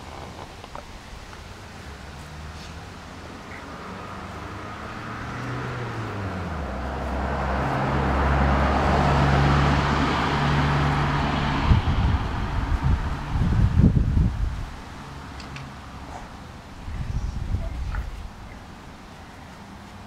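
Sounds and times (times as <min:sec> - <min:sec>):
wind buffeting microphone: 0:09.4 - 0:18.8.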